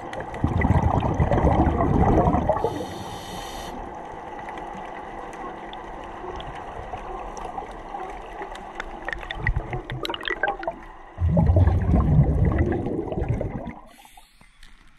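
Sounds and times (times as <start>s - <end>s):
bubbles crackling: 0.0s - 3.0s, 4.3s - 14.2s
low churning of water: 0.0s - 14.4s
underwater gurgling hiss: 0.3s - 4.1s, 11.3s - 14.9s.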